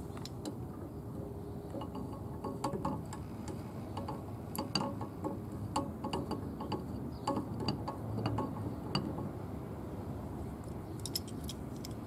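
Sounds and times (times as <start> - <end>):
wrenches clicking on metal pipe: 1.8 - 9.3.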